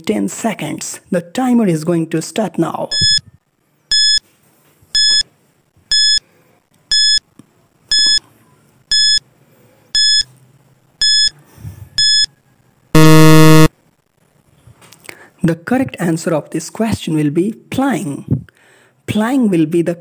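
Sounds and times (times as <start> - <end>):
low buzzer: 13.0 - 13.7
short high electronic beeps: 13.0 - 13.7.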